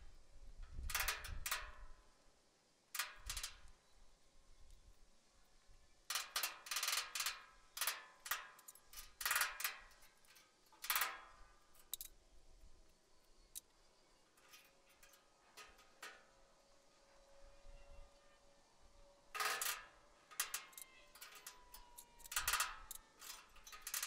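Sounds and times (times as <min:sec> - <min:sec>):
metal tools clanking: 0:19.5 - 0:24.0.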